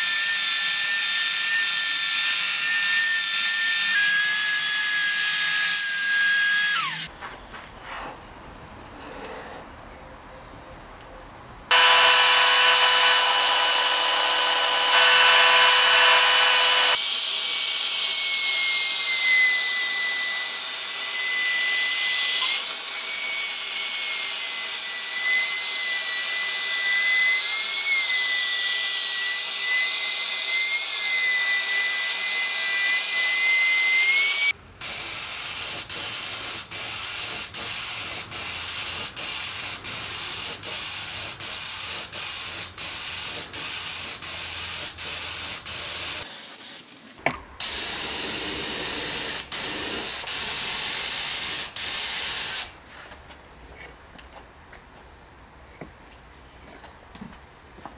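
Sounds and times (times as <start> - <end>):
electric power tool whining: 11.7 - 17.1
router whining on wood: 11.7 - 24.7, 25.3 - 34.5
spray gun hissing: 34.8 - 46.8, 47.6 - 52.7.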